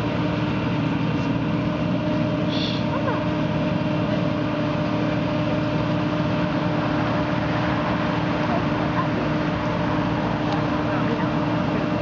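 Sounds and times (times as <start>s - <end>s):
combine harvester droning: 0.0s - 12.0s.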